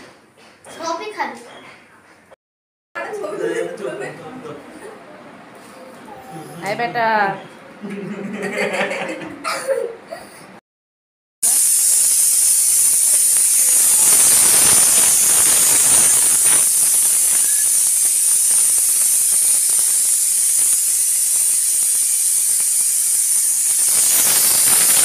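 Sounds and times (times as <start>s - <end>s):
loud crackling hiss: 11.4s - 25.0s.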